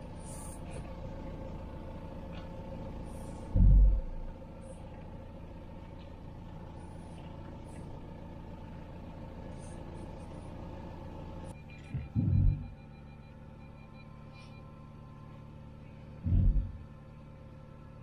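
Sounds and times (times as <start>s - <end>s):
van engine humming: 0.0s - 18.0s
loud low thump: 16.2s - 16.8s.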